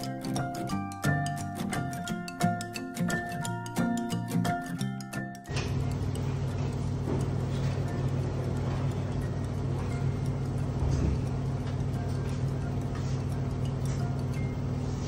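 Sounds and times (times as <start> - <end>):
background music: 0.0 - 5.6.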